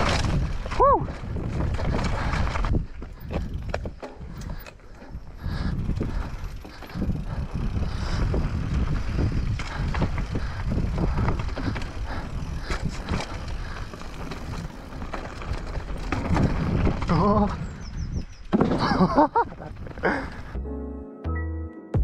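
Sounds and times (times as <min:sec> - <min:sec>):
bike tyres rumbling: 0:00.0 - 0:20.6
knocks and rattles of planks: 0:18.5 - 0:20.3.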